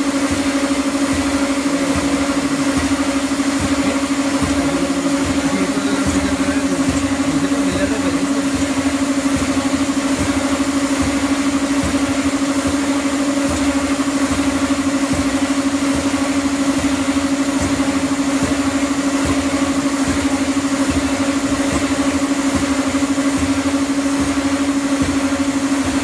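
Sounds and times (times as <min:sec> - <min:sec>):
escalator mechanical hum: 0:00.0 - 0:26.0.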